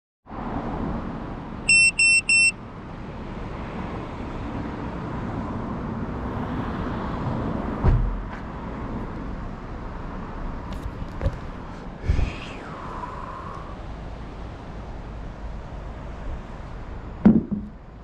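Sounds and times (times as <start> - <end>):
short electronic beeps: 1.7 - 2.6
low thump: 7.8 - 8.2, 17.2 - 17.8.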